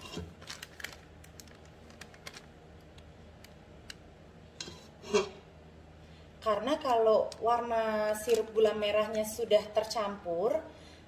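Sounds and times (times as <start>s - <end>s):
spatula scraping metal bowl: 4.6s - 5.4s.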